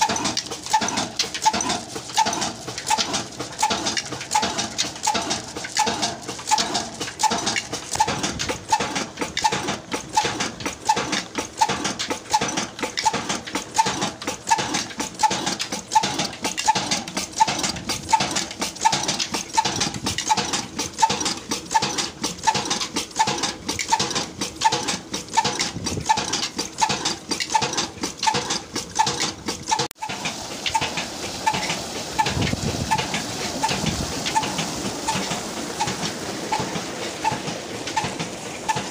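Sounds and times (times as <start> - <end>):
diesel engine running slowly: 0.0 - 38.9
water gushing into a tank: 0.0 - 38.9.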